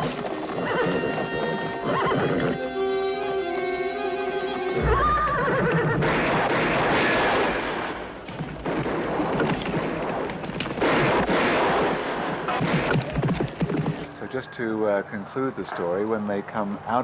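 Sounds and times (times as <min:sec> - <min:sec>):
gunshots: 0:06.0 - 0:14.1.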